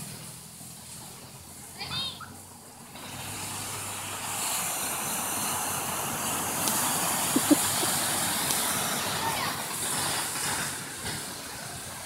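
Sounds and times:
waves washing up a beach: 0.0 - 12.0.

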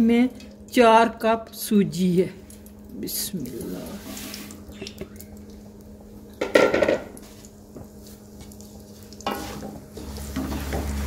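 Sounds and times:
semolina sizzling in ghee: 0.0 - 11.0
pot clatter: 6.4 - 7.2
wooden spatula stirring and scraping: 7.2 - 11.0.

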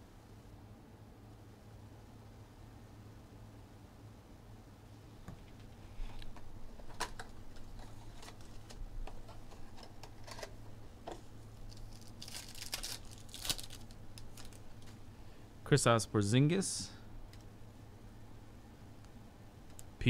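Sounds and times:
wrapper crinkling as torn open: 11.6 - 15.0.

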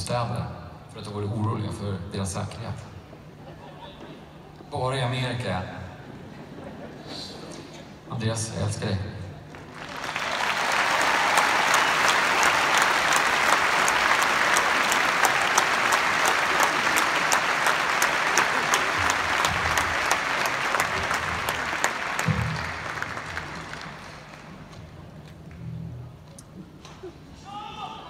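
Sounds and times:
crowd applauding and cheering: 9.4 - 25.6.

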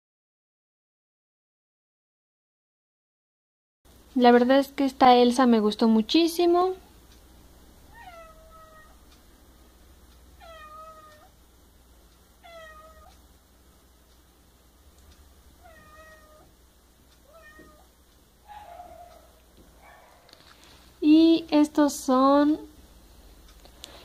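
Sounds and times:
cat meowing faintly: 7.9 - 9.0, 10.4 - 11.3, 12.4 - 13.2, 15.6 - 16.5, 17.2 - 17.9.

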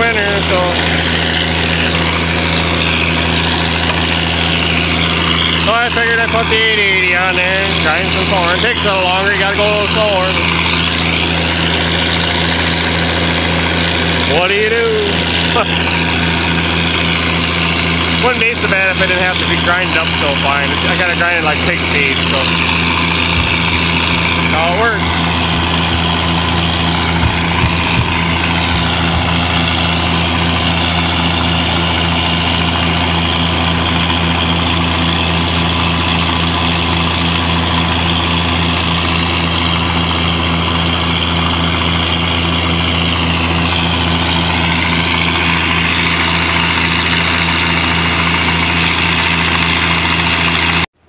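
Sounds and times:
tractor engine and grinder droning: 0.0 - 51.0.

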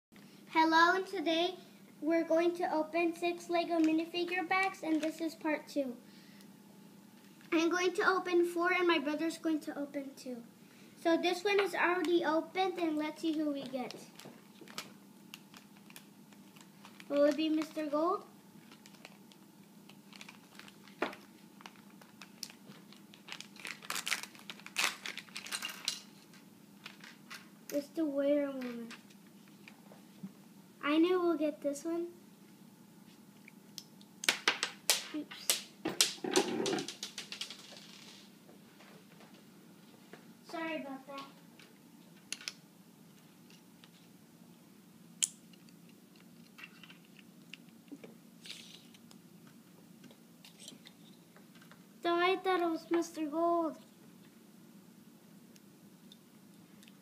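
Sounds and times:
plastic bag crinkling: 13.3 - 17.8, 18.6 - 27.4, 36.1 - 38.3.

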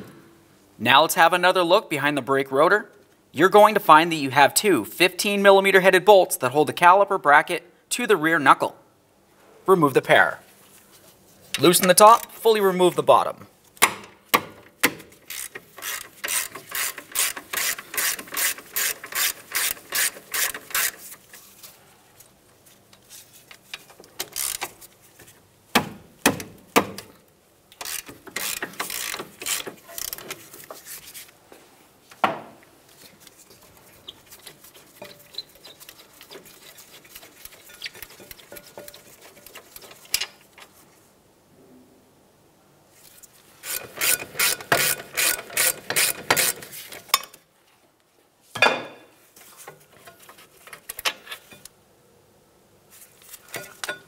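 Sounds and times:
hand ratchet clicking: 14.8 - 21.2, 23.7 - 24.9, 27.7 - 30.4, 43.6 - 47.0.

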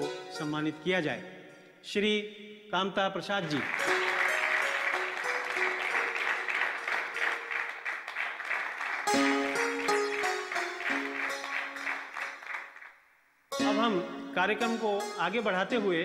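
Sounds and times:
plucked string notes: 0.0 - 1.3, 3.8 - 7.5, 9.1 - 12.4, 13.5 - 16.0
audience applauding: 3.5 - 13.0
soft held notes: 13.5 - 16.0.

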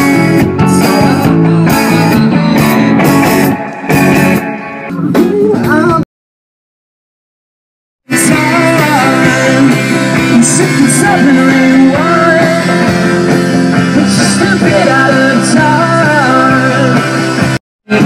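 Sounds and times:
man singing: 0.0 - 3.2, 5.1 - 6.1, 8.1 - 13.2, 13.8 - 18.0
electric guitar: 0.0 - 6.0, 8.1 - 18.0
drums: 0.0 - 6.1, 8.0 - 18.0.

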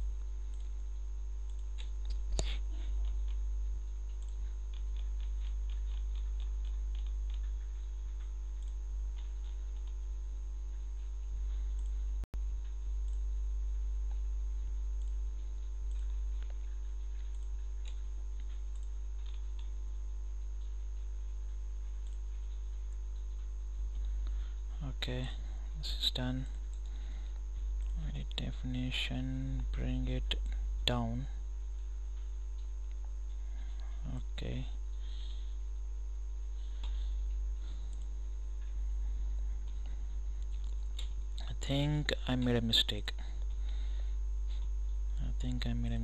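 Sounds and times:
low electrical hum: 0.0 - 46.0
computer mouse clicks: 4.1 - 10.1, 15.0 - 19.8.

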